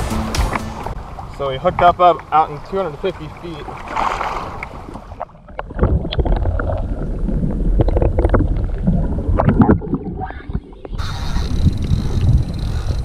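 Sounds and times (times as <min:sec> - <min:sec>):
underwater rumble: 0:03.3 - 0:13.0
underwater clicks and knocks: 0:04.6 - 0:07.1, 0:07.7 - 0:13.0.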